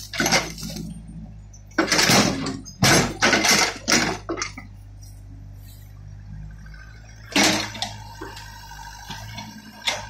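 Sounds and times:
excavator bucket clatter: 0.0s - 1.0s, 1.6s - 4.8s, 7.3s - 8.0s
diesel engine running: 0.0s - 10.0s.

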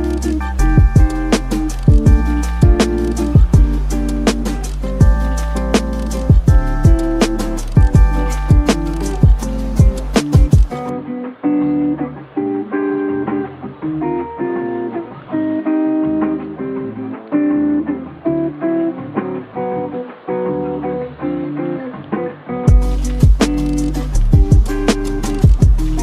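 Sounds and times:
hip hop drum beat: 0.0s - 10.9s, 22.7s - 26.0s
plucked lo-fi melody: 0.0s - 26.0s.

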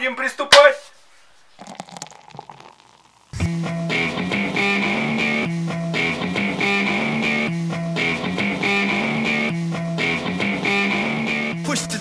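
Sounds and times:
guitar background music: 3.4s - 12.0s.

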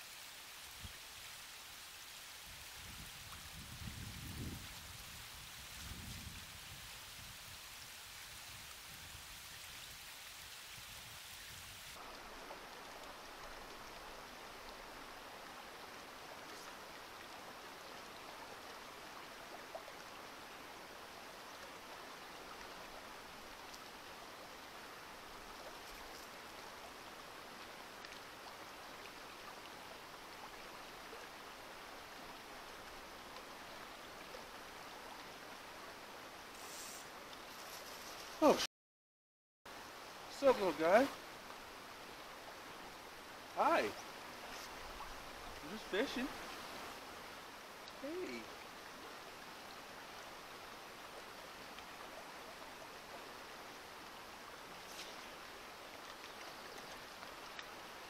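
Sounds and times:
faint flowing creek water: 0.0s - 38.7s, 39.7s - 58.0s.

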